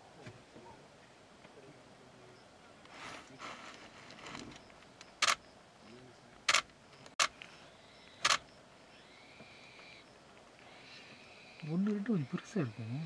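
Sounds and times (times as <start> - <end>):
camera shutter clicks: 5.2 - 5.4, 6.5 - 7.4, 8.2 - 8.5.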